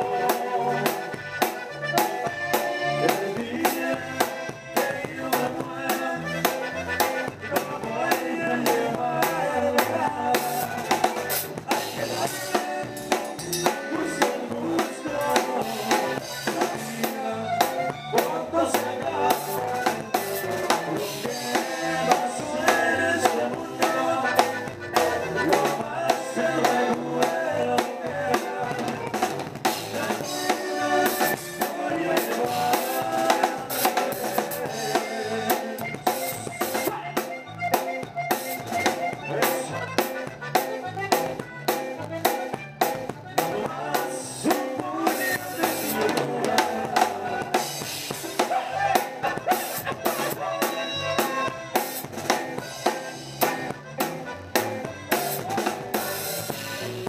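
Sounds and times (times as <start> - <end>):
drum kit playing: 0.0 - 57.0
live band music: 0.0 - 57.0.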